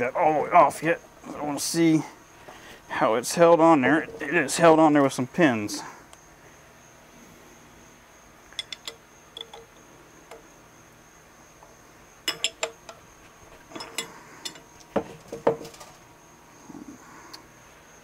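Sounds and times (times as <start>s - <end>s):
metal tools clinking on lathe: 8.6s - 9.8s, 12.3s - 13.0s, 13.7s - 14.8s.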